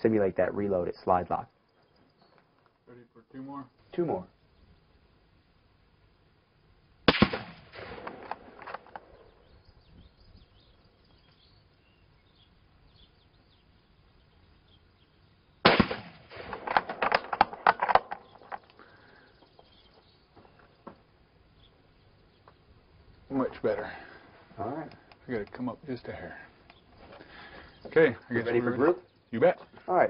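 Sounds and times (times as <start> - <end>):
rifle shots: 7.1 - 9.0, 15.6 - 18.1.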